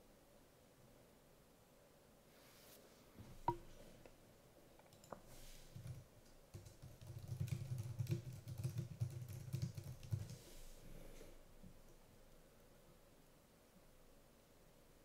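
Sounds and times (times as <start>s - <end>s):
keyboard typing: 4.9s - 10.4s.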